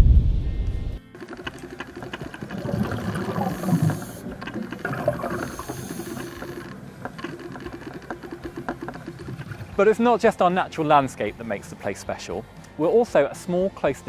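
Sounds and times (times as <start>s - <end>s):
underwater bubbles rushing: 1.2s - 10.0s.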